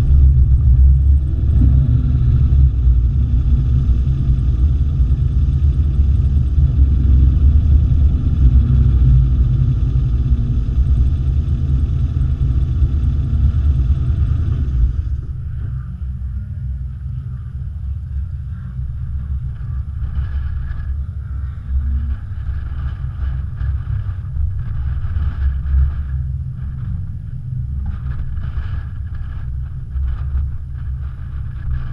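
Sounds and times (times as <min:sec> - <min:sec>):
high engine whirring: 0:00.0 - 0:16.7
race car engine idling: 0:00.0 - 0:31.9.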